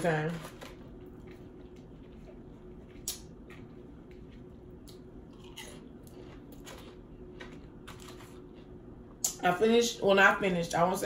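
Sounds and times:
person chewing food: 0:00.9 - 0:09.2.

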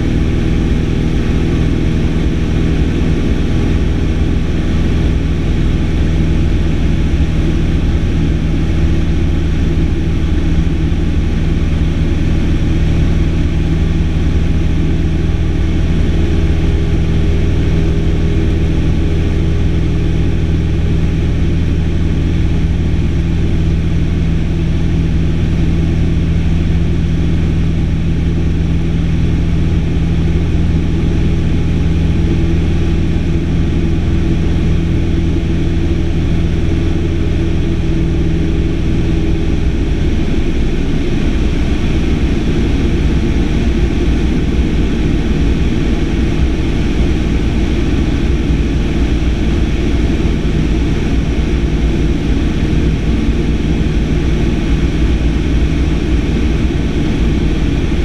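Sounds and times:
airplane engine drone in cockpit: 0:00.0 - 0:58.0.

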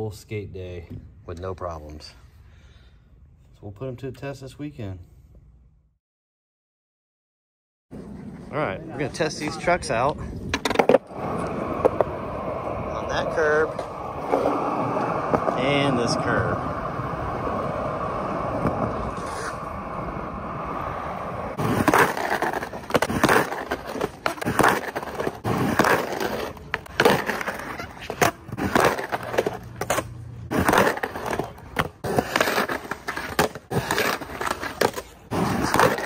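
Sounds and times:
skateboard trucks grinding: 0:07.9 - 0:36.0
skateboard wheels rolling: 0:07.9 - 0:36.0
skateboard hard landings: 0:10.5 - 0:36.0.

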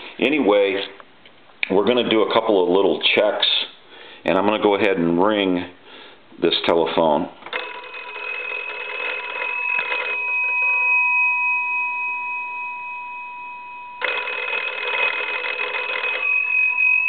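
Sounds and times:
telephone bell ringing: 0:07.5 - 0:17.0.

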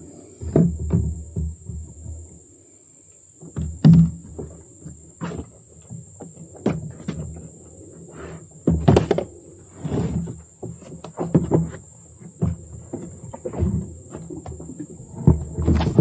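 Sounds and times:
footsteps in a metal boat: 0:08.4 - 0:16.0.

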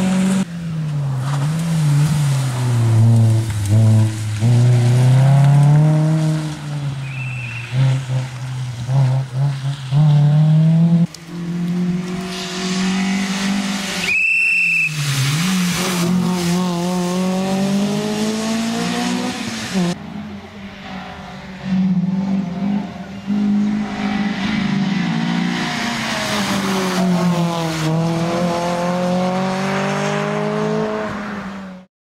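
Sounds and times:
rally car engine revving: 0:00.0 - 0:14.2, 0:14.8 - 0:31.9
tyre squeal: 0:07.0 - 0:07.8, 0:14.0 - 0:15.2.

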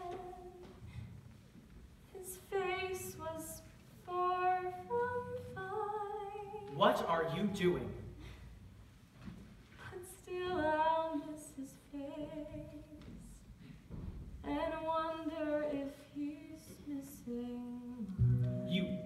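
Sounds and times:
woman singing unaccompanied: 0:00.0 - 0:00.7, 0:02.1 - 0:06.7, 0:09.8 - 0:13.4, 0:14.4 - 0:18.2.

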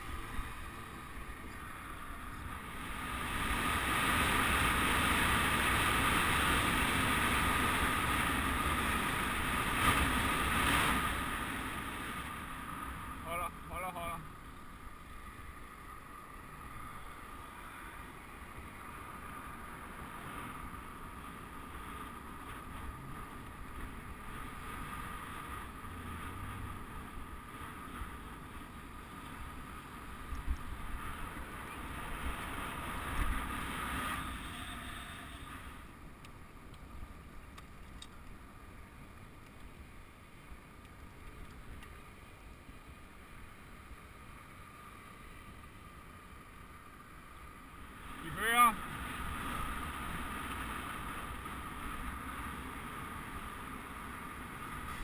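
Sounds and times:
wind rushing over microphone: 0:00.0 - 0:14.1, 0:14.7 - 0:36.1
bike tyre noise on asphalt: 0:00.0 - 0:55.0.

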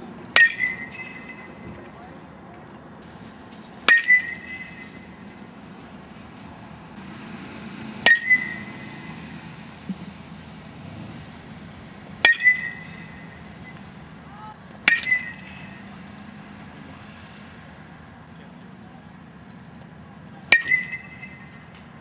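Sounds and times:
metal bat pinging on ball: 0:00.4 - 0:01.6, 0:03.8 - 0:05.2, 0:08.0 - 0:08.9, 0:12.2 - 0:13.8, 0:14.8 - 0:16.2, 0:20.5 - 0:21.6.

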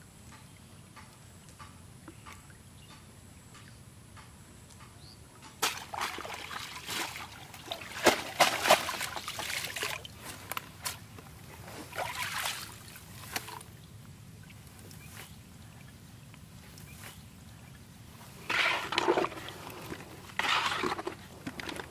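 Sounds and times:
water splashing and trickling: 0:05.6 - 0:21.9.

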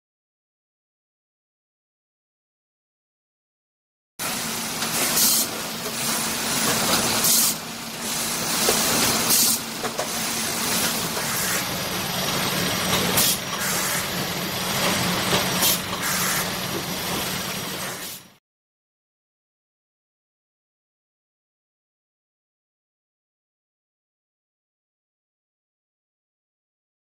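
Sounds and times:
machinery humming: 0:04.2 - 0:18.4
compressed air hiss bursts: 0:04.4 - 0:11.8, 0:13.1 - 0:14.2, 0:15.5 - 0:16.6, 0:17.7 - 0:18.3.

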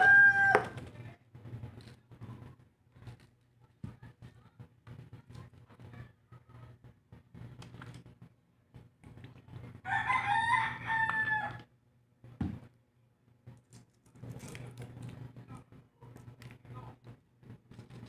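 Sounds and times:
rooster crowing: 0:00.0 - 0:00.8, 0:09.8 - 0:11.7.

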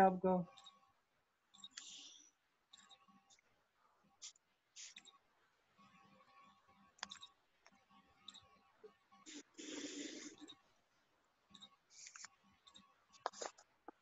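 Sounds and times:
soft breathy noise: 0:01.7 - 0:02.4, 0:09.3 - 0:10.5.

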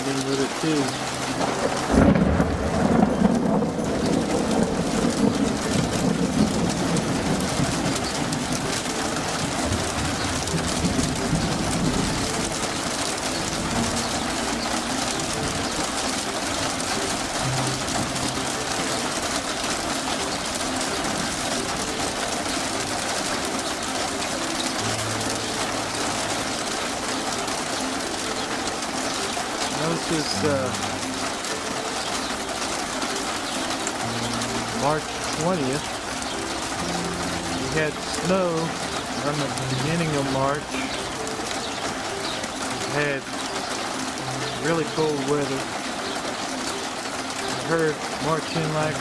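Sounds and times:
rain and hail falling: 0:00.0 - 0:49.0.

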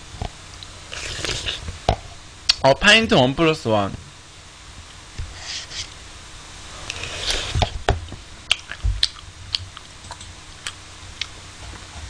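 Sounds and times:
eating sounds: 0:08.5 - 0:11.4.

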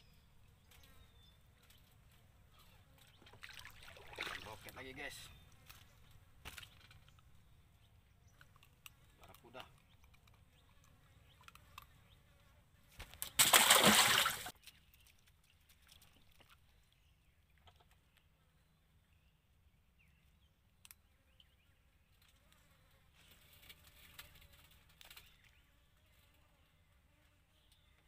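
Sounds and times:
fish splashing into water: 0:13.2 - 0:14.5.

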